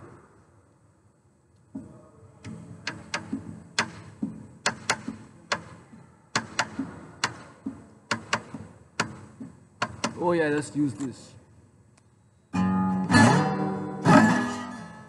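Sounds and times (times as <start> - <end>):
resonator guitar single notes: 12.6 - 15.0.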